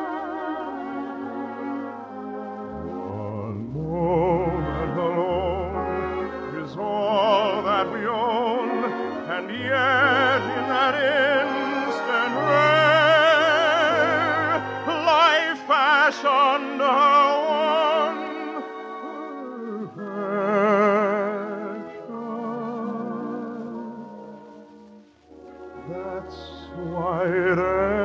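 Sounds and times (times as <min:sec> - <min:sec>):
operatic singing: 0:00.0 - 0:28.0
orchestra: 0:00.0 - 0:28.0.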